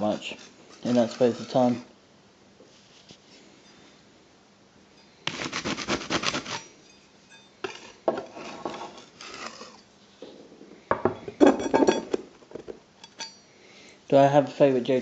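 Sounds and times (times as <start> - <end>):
hard objects clattering and clinking: 7.6 - 13.4.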